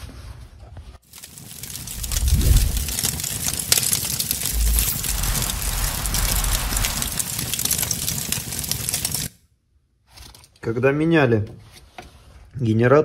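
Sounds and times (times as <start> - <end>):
crackling hiss: 1.1 - 9.3
low rumble: 1.8 - 3.0, 4.3 - 8.7
deep boom: 4.4 - 8.0.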